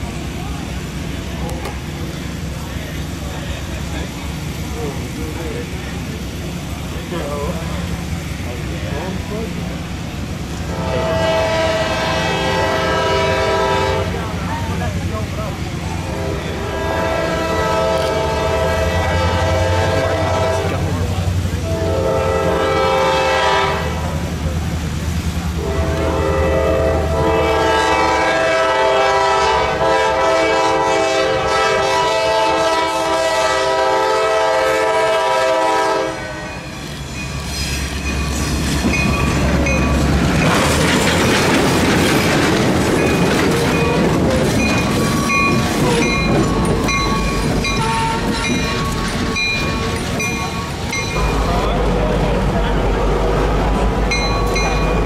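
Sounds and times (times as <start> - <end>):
locomotive rumble: 0.0 - 55.0
locomotive horn blasts: 10.7 - 14.3, 16.1 - 20.8, 21.6 - 24.0, 25.6 - 36.7, 45.8 - 48.8.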